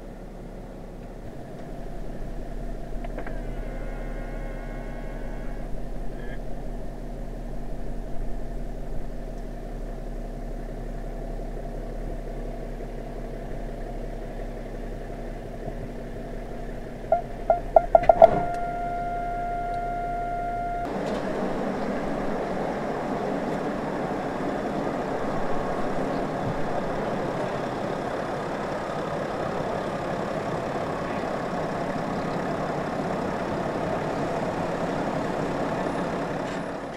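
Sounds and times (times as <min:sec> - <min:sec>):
car cabin hum: 0:00.0 - 0:36.9
car engine running: 0:00.0 - 0:36.9
parking sensor beeps: 0:17.1 - 0:20.9.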